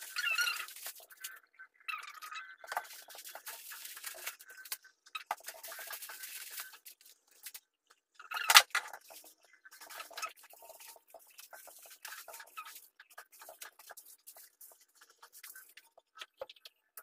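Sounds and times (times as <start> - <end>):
plastic packaging crinkling: 0.0 - 1.2, 2.7 - 7.6, 8.4 - 15.8.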